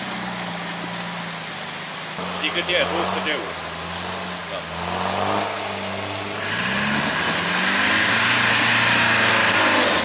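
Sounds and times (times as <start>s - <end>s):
engine revving under load: 2.2s - 10.0s.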